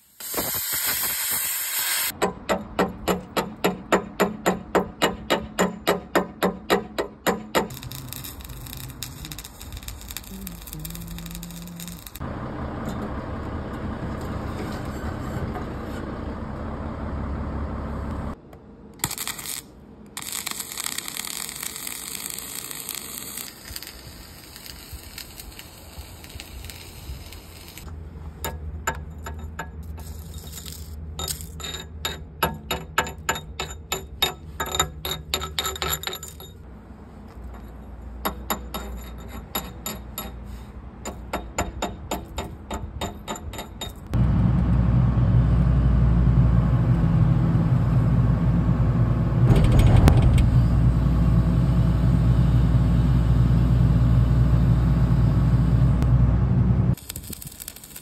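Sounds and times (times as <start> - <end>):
hiss: 0.0 - 2.2, 7.8 - 12.2, 20.2 - 27.8, 57.0 - 58.0
low hum: 7.7 - 18.4, 44.1 - 57.0
heavy machine engine running: 11.0 - 18.4, 44.2 - 57.0.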